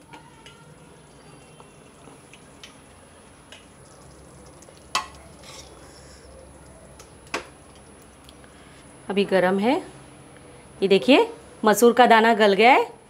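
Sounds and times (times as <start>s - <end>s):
ladle clanking against pot: 4.9s - 5.7s
ladle scraping in pot: 5.0s - 6.2s.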